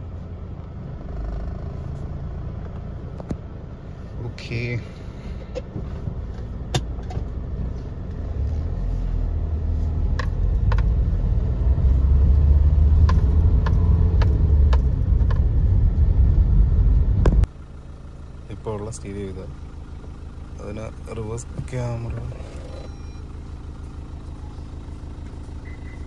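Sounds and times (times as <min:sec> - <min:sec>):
car engine and road rumble: 0:00.0 - 0:26.0.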